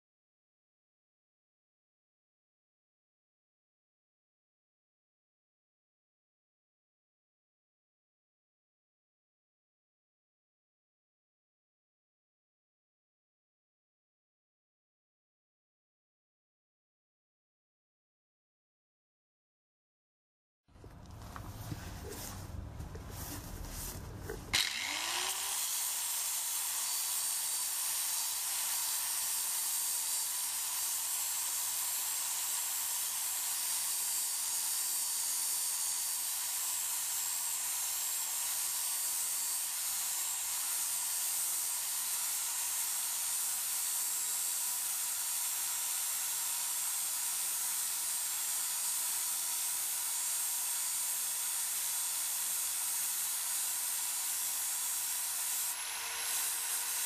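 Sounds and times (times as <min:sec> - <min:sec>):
angle grinder grinding metal: 0:24.3 - 0:49.8, 0:51.2 - 0:57.0.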